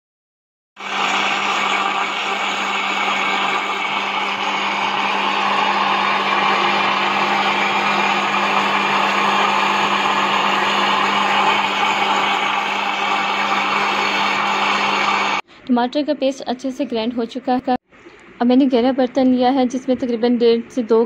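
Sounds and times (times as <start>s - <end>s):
electric blender running: 0.8s - 15.4s.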